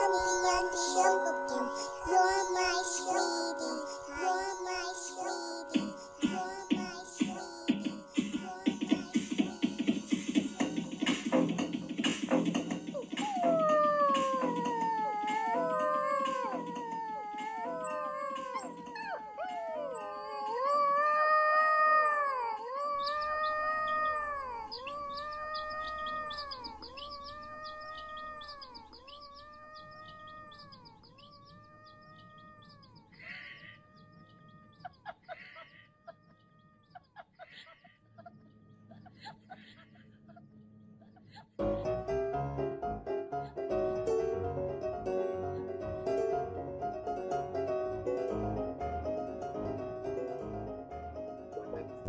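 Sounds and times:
animal drawn-out pitched calls: 13.0 - 36.2.

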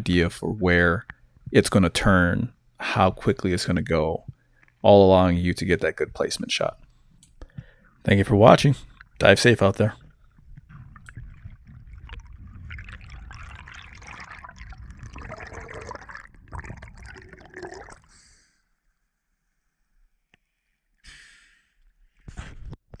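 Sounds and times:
muffled underwater rushing water: 7.6 - 18.2.

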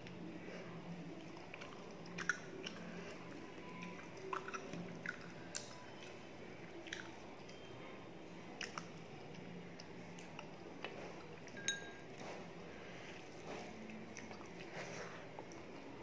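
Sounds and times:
wet squishing of food by hand: 0.0 - 16.0
mouth clicks while chewing: 1.2 - 3.0, 3.7 - 7.6, 8.5 - 11.6
ringing clink: 11.6 - 12.0.

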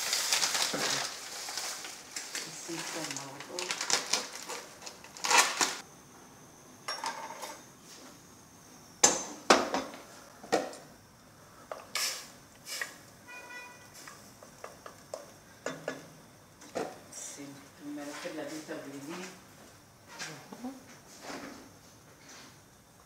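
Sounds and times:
plastic bags rustling: 0.0 - 5.8.

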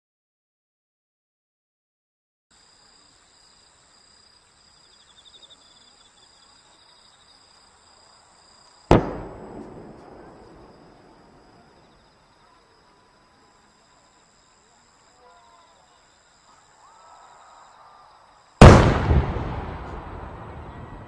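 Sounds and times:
insect chirring: 2.6 - 8.9
firework bang echoing: 8.9 - 11.7, 18.6 - 21.0.

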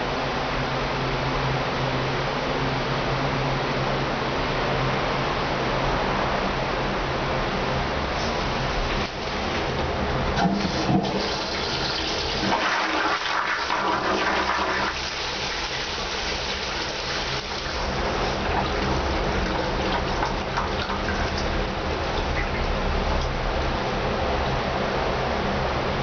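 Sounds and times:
squat toilet flushing: 8.2 - 23.4.

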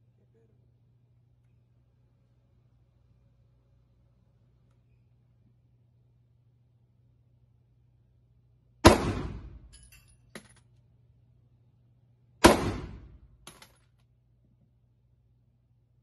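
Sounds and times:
pistol shots echoing: 8.8 - 9.7, 12.4 - 13.2
small metallic clinks: 9.7 - 10.8.

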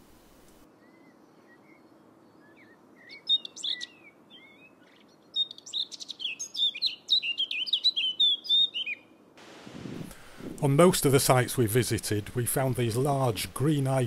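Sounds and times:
songbird singing: 0.5 - 9.3.

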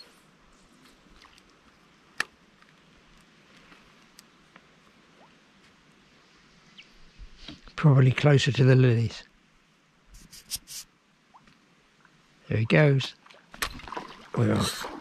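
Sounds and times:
faint ticks: 1.4 - 4.7.

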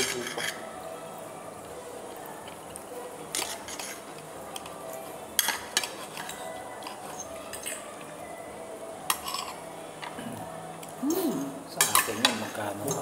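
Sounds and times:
cutlery clinking on a plate: 0.0 - 0.6, 5.4 - 7.8, 9.1 - 10.1, 11.8 - 13.0.

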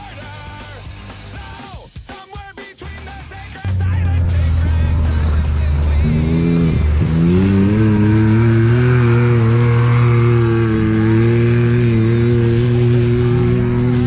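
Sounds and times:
engine accelerating past: 3.7 - 14.0.

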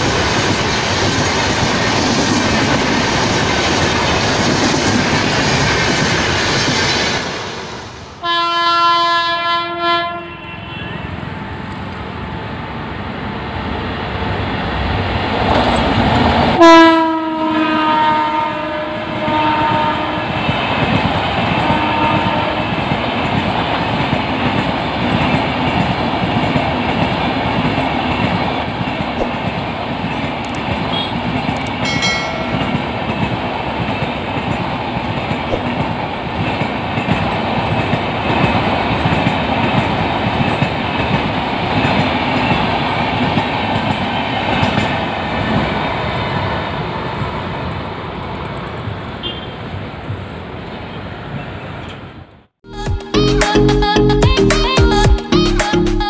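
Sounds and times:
train wheels clacking on rails: 0.0 - 7.9, 19.2 - 46.2.

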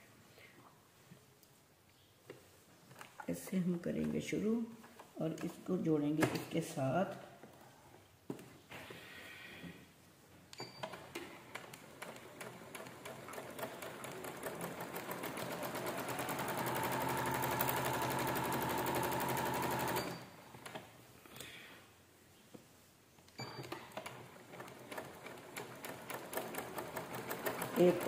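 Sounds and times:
sewing machine stitching: 10.8 - 20.9, 23.4 - 28.0.

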